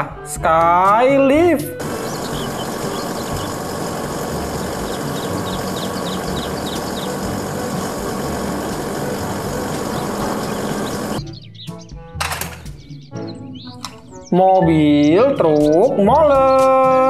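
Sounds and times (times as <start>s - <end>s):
faint high chirps: 1.8s - 11.2s
truck engine running: 1.8s - 11.2s.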